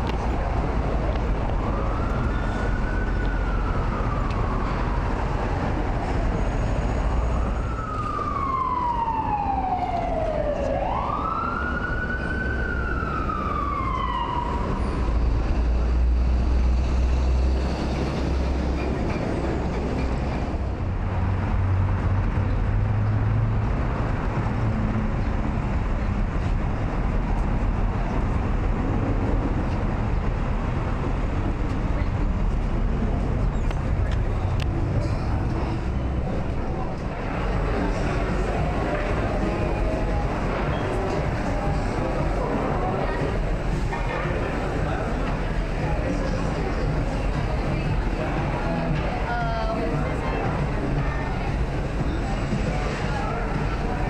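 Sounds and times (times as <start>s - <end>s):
emergency vehicle siren wailing: 0.0s - 16.7s
city traffic rumble: 0.0s - 54.0s.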